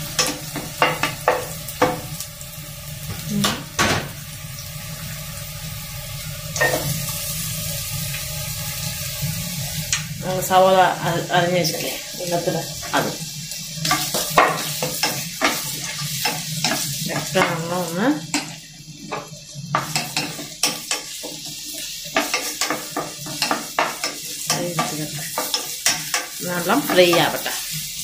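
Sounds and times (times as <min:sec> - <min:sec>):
vegetables sizzling in hot oil: 0:00.0 - 0:28.0
spatula scraping a pan: 0:11.6 - 0:17.7, 0:18.3 - 0:28.0.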